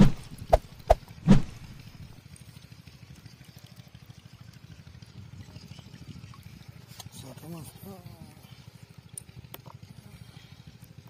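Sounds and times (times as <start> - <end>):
water trickling and dripping: 1.6 - 8.0, 8.6 - 10.0.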